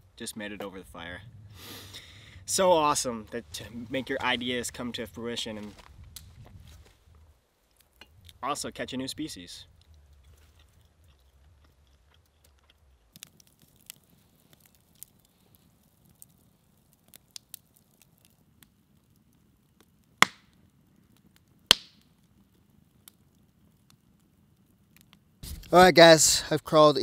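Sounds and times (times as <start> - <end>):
campfire crackling: 0.0 - 27.0
loud sharp fire pops: 20.2 - 22.2.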